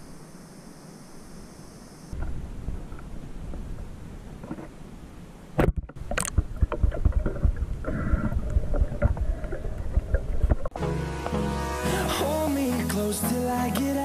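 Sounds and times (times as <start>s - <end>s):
sharp clicks and knocks: 5.6s - 10.8s
low underwater rumble: 6.0s - 11.6s.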